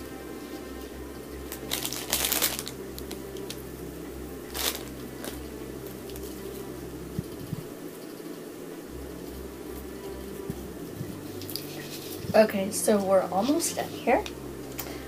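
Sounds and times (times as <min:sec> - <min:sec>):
crinkling shiny filler: 0:01.5 - 0:03.6.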